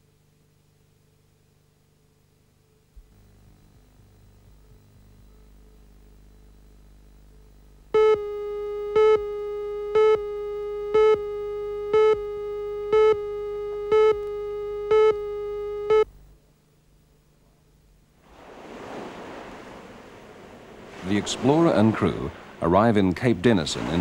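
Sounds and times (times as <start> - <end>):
faint hum: 0.0 - 24.0
countdown tone beeps: 8.0 - 16.1.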